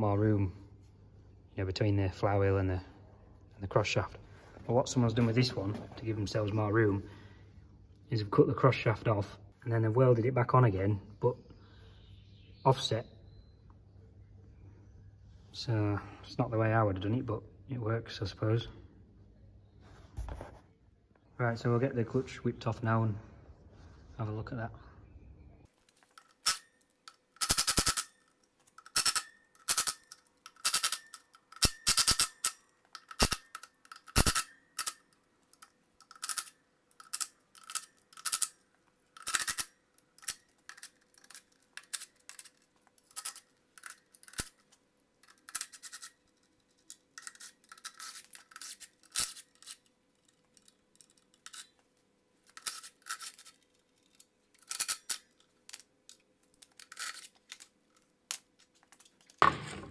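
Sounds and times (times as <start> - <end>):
impact wrench rattling: 26.1 - 44.6.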